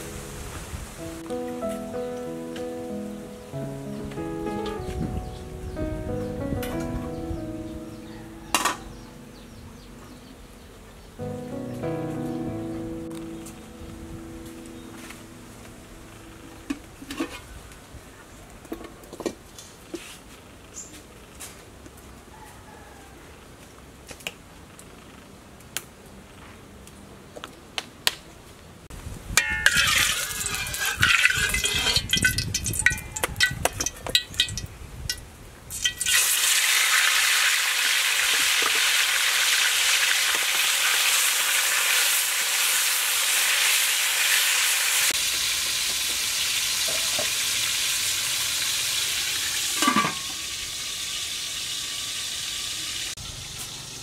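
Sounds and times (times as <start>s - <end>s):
wok lid clanking: 8.5s - 9.1s, 29.4s - 34.6s, 49.6s - 50.5s
chicken frying in oil: 29.6s - 54.0s.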